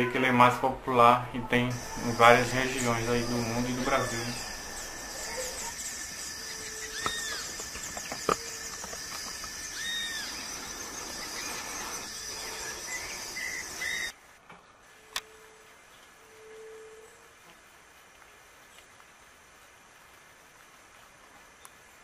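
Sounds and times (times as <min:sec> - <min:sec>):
bird call: 0:01.7 - 0:14.1
high insect buzz: 0:01.7 - 0:14.1.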